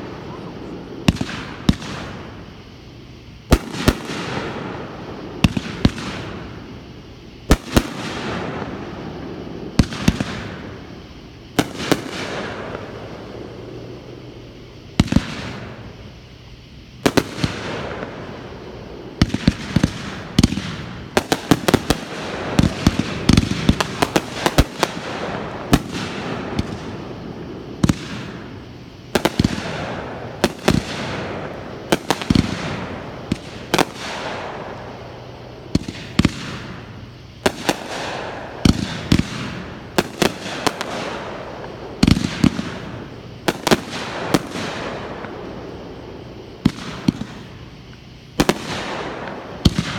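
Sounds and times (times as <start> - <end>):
fireworks bangs: 0.0 - 49.9.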